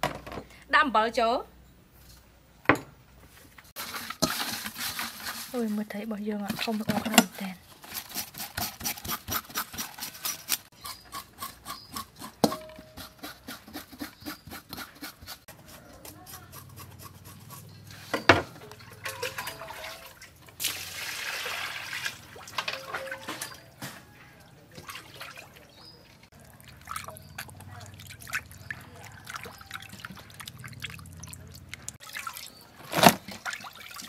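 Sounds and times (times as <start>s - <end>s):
knife scraping fish scales: 7.8s - 18.2s.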